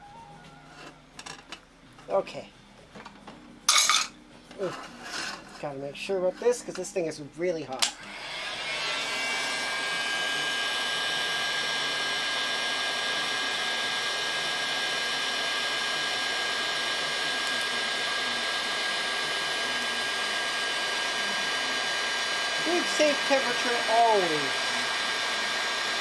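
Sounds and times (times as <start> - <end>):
heat gun blowing air: 8.0 - 26.0.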